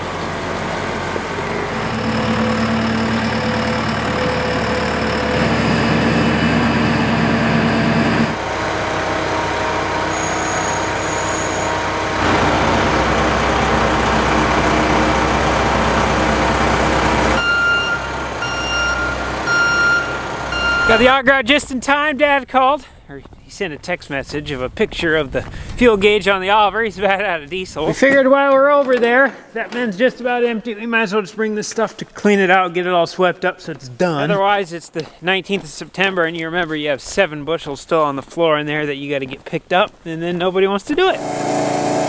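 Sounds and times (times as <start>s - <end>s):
diesel engine running: 0.0s - 21.4s, 41.2s - 42.0s
backup alarm tone: 1.4s - 15.1s, 17.1s - 21.2s.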